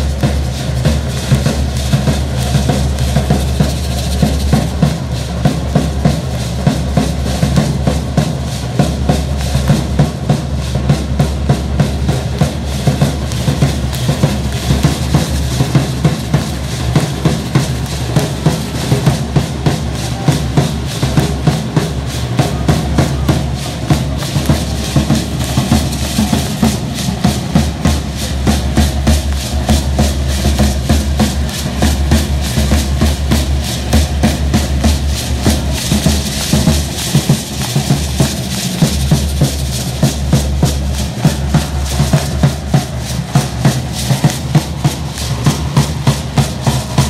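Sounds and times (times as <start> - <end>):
drum beating quick rhythm: 0.0 - 47.0
rattles shaking: 23.5 - 46.4.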